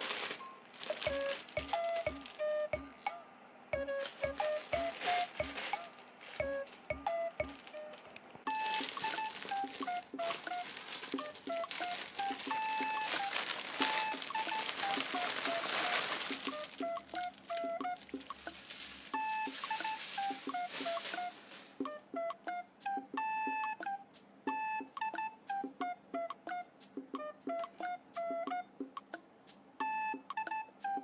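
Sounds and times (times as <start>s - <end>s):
plastic bag crinkling: 0.0s - 3.0s, 3.9s - 21.8s
light plinking background music: 0.1s - 31.0s.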